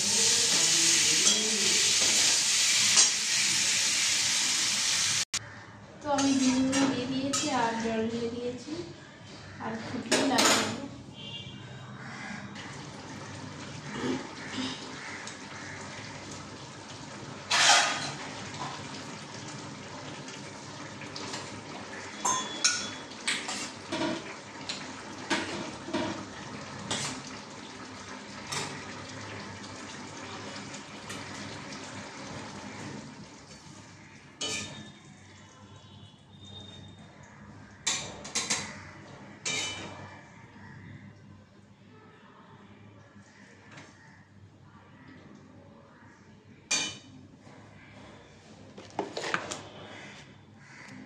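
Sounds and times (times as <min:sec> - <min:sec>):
metal utensils and dishes clattering: 0:06.1 - 0:07.9, 0:10.0 - 0:10.9, 0:17.5 - 0:18.7, 0:22.2 - 0:24.3, 0:25.3 - 0:27.3, 0:34.4 - 0:35.0, 0:37.8 - 0:38.8, 0:39.4 - 0:40.1.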